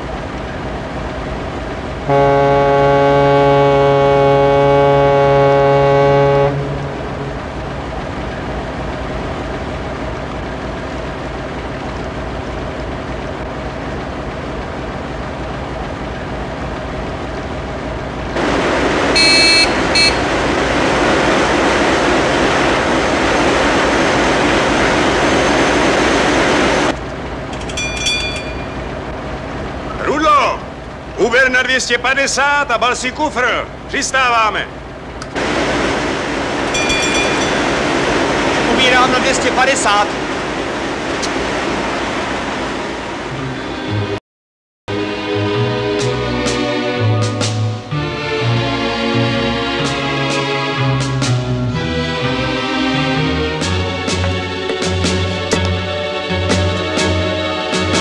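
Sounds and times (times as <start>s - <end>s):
ship engine hum: 0.0s - 44.2s, 44.9s - 58.0s
ship's horn blast: 2.0s - 7.9s, 18.4s - 23.1s, 43.3s - 44.2s
loud rushing hiss: 18.3s - 26.9s, 35.4s - 43.3s
telegraph bell ringing: 27.5s - 29.0s, 36.7s - 37.9s.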